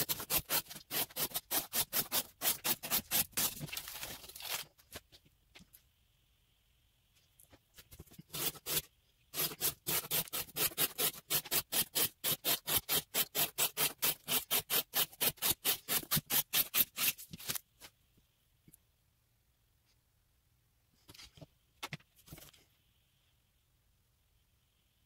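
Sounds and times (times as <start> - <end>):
knife slicing cardboard: 0.0 - 3.8, 8.2 - 17.6.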